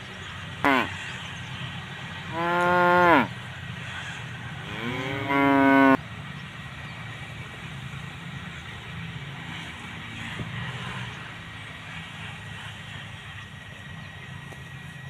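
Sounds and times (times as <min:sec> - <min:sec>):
cattle mooing: 0:00.6 - 0:01.0, 0:02.2 - 0:03.4, 0:04.6 - 0:06.0.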